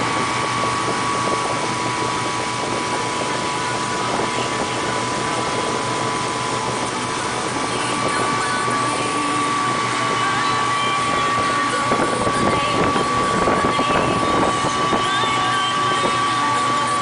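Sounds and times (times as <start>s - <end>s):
boat engine whine: 0.0s - 17.0s
rushing water: 0.0s - 17.0s
wind: 0.0s - 17.0s.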